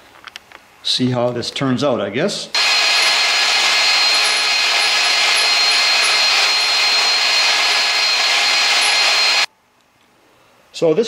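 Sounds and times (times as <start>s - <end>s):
electric drill boring through steel: 2.6s - 9.5s.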